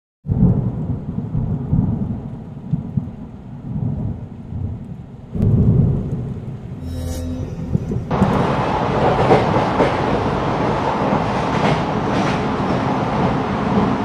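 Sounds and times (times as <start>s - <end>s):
thunder rumbling: 0.3s - 6.8s.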